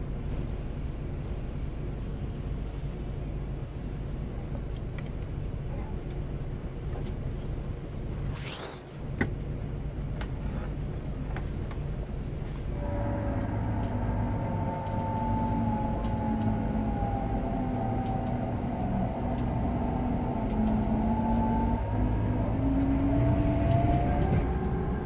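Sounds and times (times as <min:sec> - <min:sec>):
bus cabin engine and road rumble: 0:00.0 - 0:25.0
hum drifting in pitch: 0:12.7 - 0:25.0.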